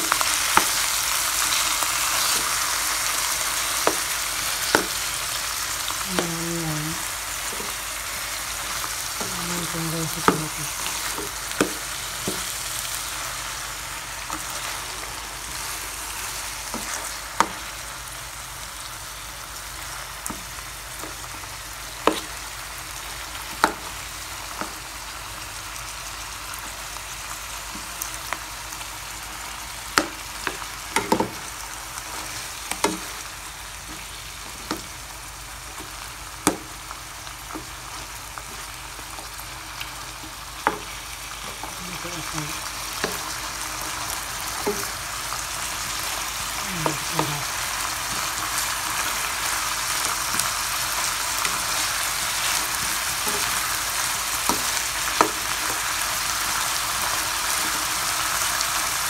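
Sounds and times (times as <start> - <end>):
meat and onions sizzling: 0.0 - 59.0
spatula knocking on pan: 4.7 - 5.0, 11.1 - 12.5.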